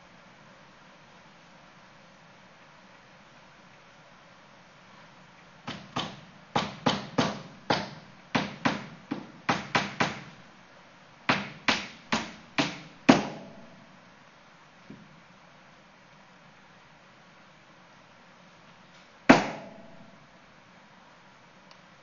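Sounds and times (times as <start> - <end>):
sharp knocks: 5.6 - 10.4, 11.3 - 13.8, 19.3 - 20.1.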